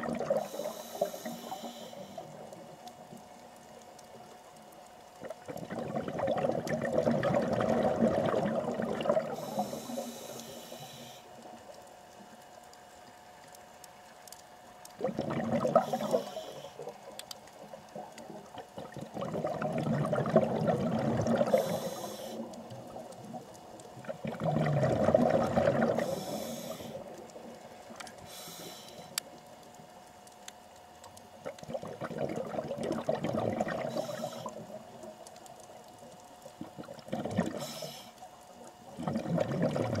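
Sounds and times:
exhaled bubbles underwater: 0.0s - 4.4s, 5.1s - 12.6s, 14.9s - 29.5s, 31.3s - 40.0s.

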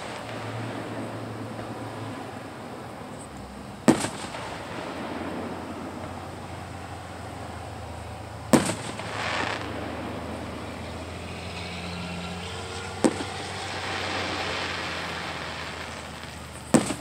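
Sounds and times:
firework shells booming: 0.0s - 17.0s.

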